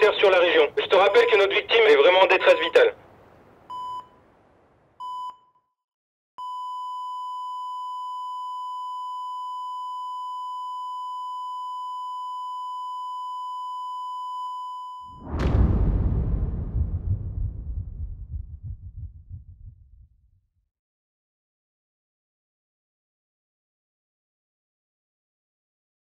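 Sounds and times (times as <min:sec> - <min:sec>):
heart monitor beeping: 0:06.4 - 0:15.1.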